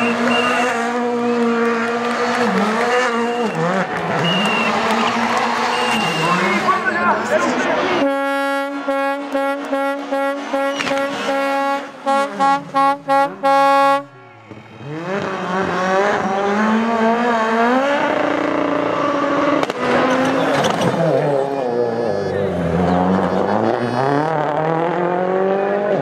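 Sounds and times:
rally car engine revving: 0.0s - 26.0s
loud horn blasts: 8.0s - 14.2s.

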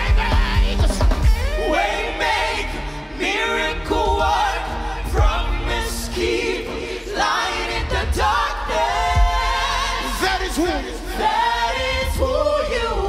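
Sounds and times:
band playing: 0.0s - 2.5s
choir singing gospel song: 0.0s - 13.0s.

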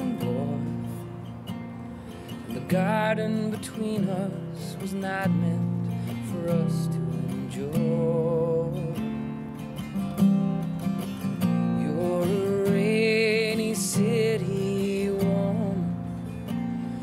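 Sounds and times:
man singing with vibrato: 0.0s - 1.2s, 2.5s - 9.3s, 11.5s - 17.0s
strummed acoustic guitar: 0.0s - 17.0s.

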